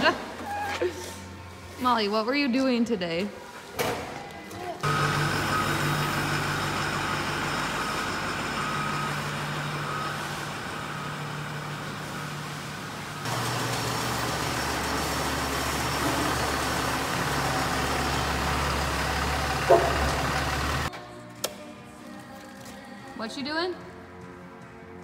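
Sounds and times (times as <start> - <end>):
truck engines idling: 4.8 - 20.9.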